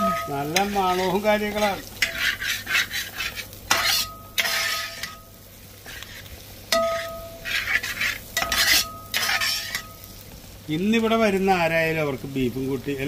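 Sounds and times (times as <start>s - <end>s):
spatula scraping a pan: 0.0s - 10.1s
meat sizzling in a pan: 0.0s - 13.0s.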